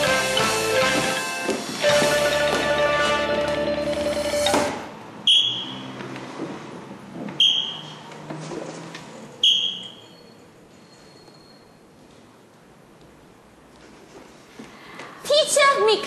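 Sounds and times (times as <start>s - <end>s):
guitar music: 0.0s - 4.7s.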